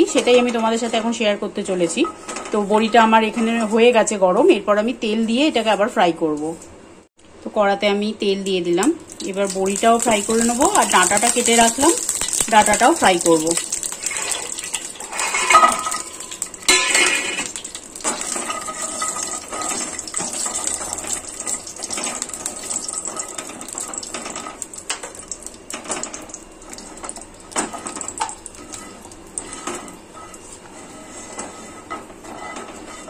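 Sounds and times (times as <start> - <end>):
dumplings sizzling in oil: 8.4 - 33.0
spatula clattering against pan: 14.2 - 30.4.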